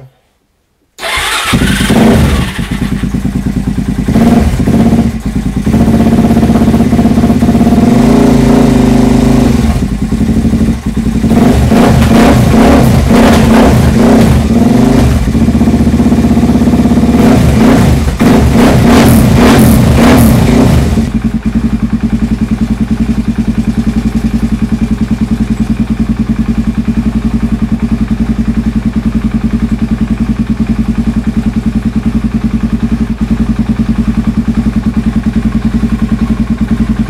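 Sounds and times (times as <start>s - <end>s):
motorcycle engine throttle blips: 1.0s - 7.9s.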